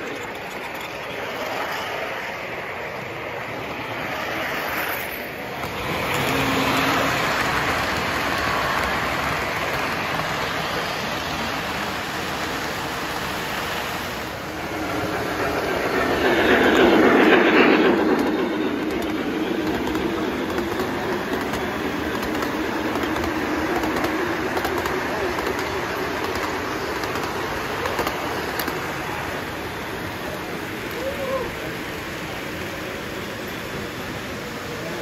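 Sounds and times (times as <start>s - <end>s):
toy train wheels clattering on rail: 0.0s - 2.5s, 4.2s - 14.2s, 14.9s - 29.4s.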